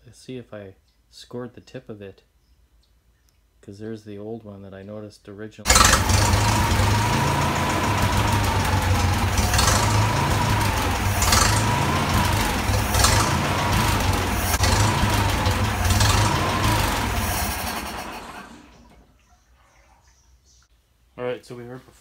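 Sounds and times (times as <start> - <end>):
tractor engine surging: 5.7 - 19.0.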